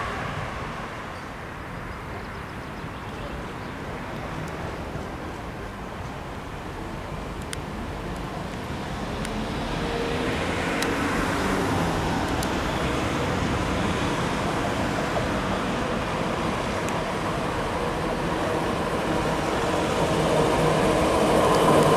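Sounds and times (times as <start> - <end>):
tram wheels rumbling on rail: 0.0 - 21.9
faint clicks: 7.4 - 9.4.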